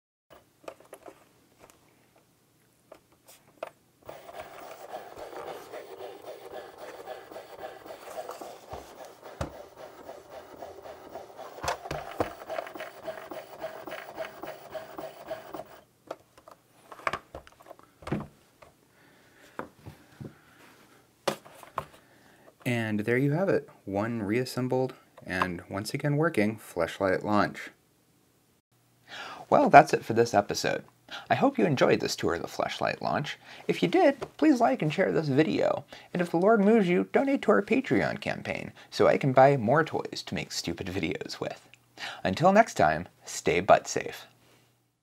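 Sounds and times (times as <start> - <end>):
electric motor whirring: 4.1 - 15.8.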